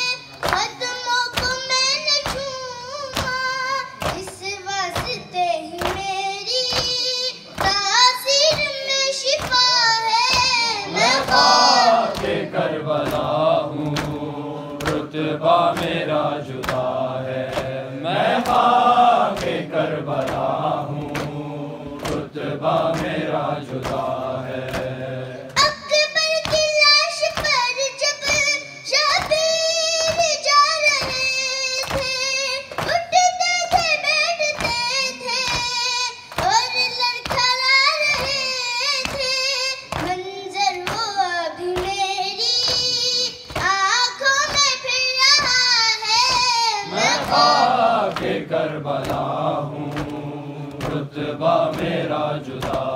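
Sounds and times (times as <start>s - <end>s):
boy singing solo: 0.0s - 12.2s
men singing refrain together: 10.5s - 25.6s, 46.8s - 52.9s.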